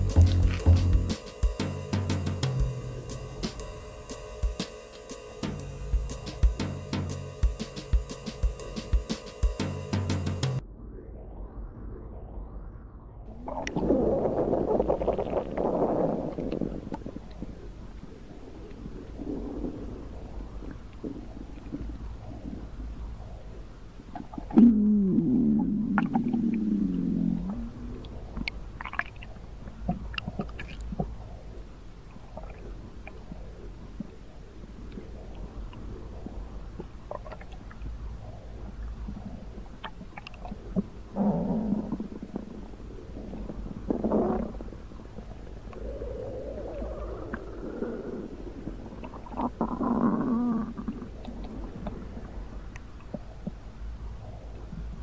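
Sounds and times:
gurgling stomach rumbling: 11.1 - 55.0.

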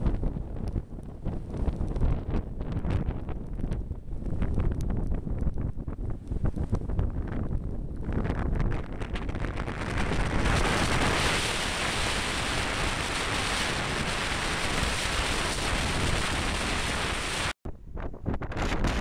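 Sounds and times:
wind buffeting microphone: 0.0 - 19.0
surf breaking on beach: 9.2 - 17.6.

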